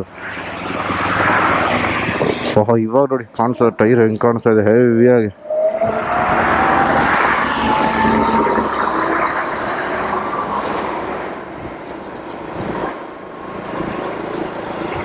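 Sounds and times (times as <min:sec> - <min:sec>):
wind noise on microphone: 0:00.0 - 0:02.7, 0:05.4 - 0:14.1
electric scooter motor whine: 0:05.6 - 0:10.4.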